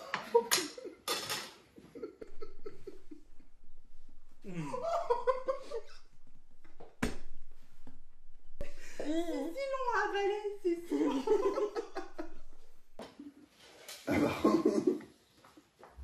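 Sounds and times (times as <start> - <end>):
people laughing and giggling: 1.8 - 3.6, 4.5 - 6.0, 8.6 - 9.8, 10.9 - 12.6, 14.1 - 15.1.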